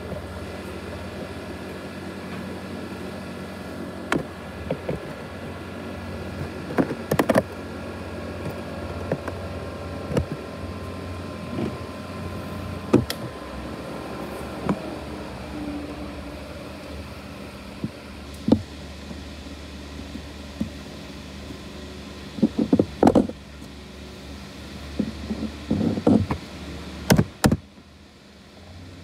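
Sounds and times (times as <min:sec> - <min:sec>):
laptop cooling fan whirring: 0:00.0 - 0:29.0.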